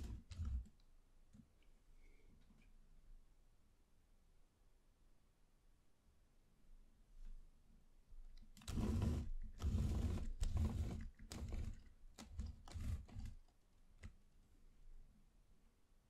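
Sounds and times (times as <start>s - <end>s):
wooden model scraping and rattling: 0.0s - 0.8s, 8.6s - 13.5s.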